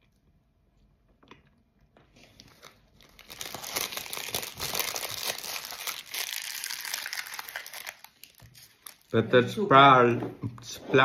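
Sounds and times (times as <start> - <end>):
snack wrapper crinkling: 2.2 - 9.2.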